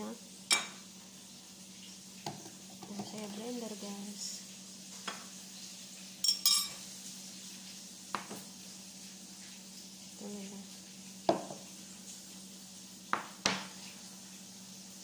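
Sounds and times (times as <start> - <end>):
fish frying in oil: 0.0 - 15.0
plastic blender cup knocks: 11.3 - 11.6.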